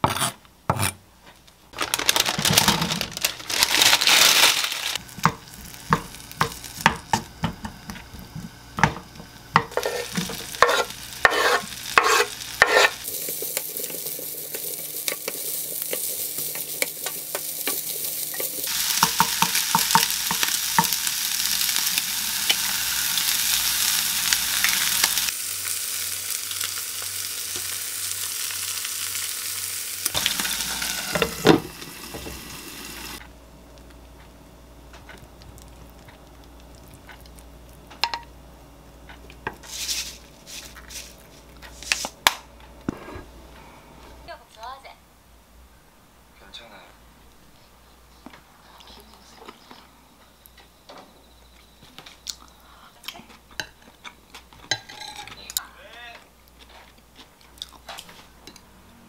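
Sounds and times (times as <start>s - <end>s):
ham sizzling in a frying pan: 2.0s - 33.3s
egg frying in a pan: 5.0s - 33.2s.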